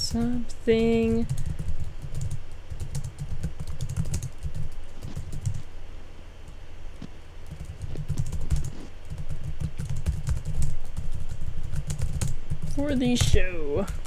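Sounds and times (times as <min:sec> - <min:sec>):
typing on computer keyboard: 0:01.2 - 0:05.6, 0:07.5 - 0:14.0.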